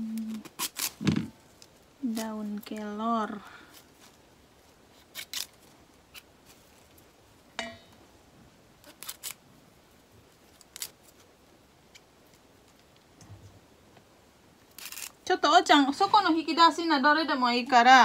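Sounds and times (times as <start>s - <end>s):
leaves snapping and rustling: 0.2s - 3.0s, 4.9s - 7.0s, 8.8s - 9.4s, 10.5s - 11.2s, 14.7s - 15.3s.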